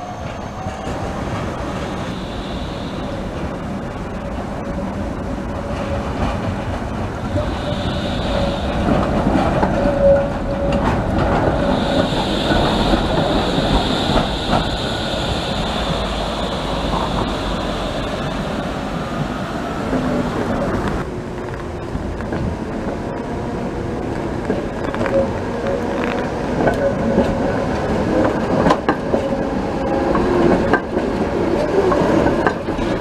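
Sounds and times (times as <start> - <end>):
high wheel squeal: 0.0 - 3.4, 7.3 - 20.7
tram wheels rumbling on rails: 0.0 - 33.0.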